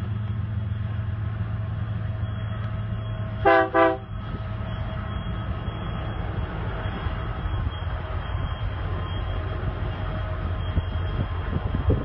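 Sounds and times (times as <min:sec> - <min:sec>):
low rumble of diesel train: 0:00.0 - 0:12.0
locomotive air horn blasts: 0:03.4 - 0:04.1.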